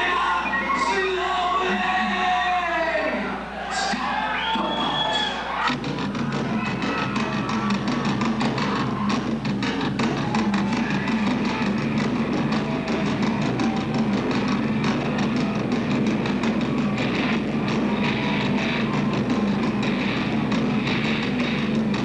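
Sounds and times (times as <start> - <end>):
fast drumbeat: 5.6 - 22.0.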